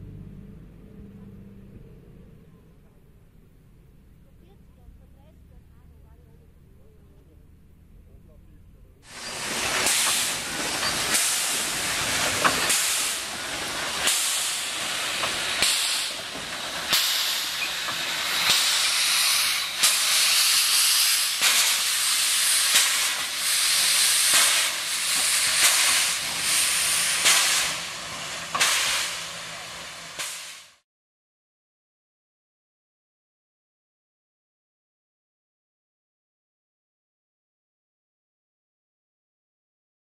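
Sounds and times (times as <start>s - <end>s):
steam hissing from locomotive: 9.0s - 30.8s.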